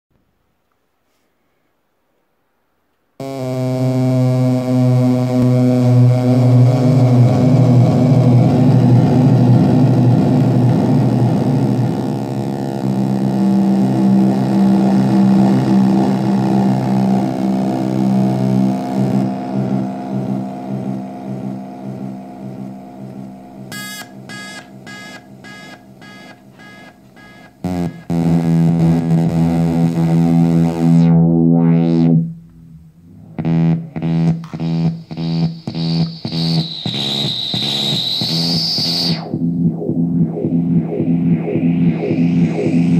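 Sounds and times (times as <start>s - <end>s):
buzzy synthesizer drone: 3.2s - 42.9s
high whistling tone: 35.7s - 39.4s.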